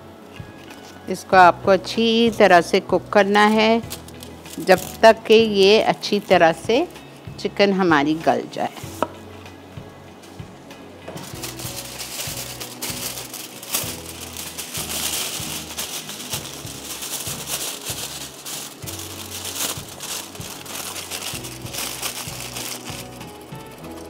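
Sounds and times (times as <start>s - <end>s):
background music: 0.0s - 24.0s
aluminium foil crinkling: 0.6s - 1.1s, 2.3s - 7.2s, 11.2s - 24.0s.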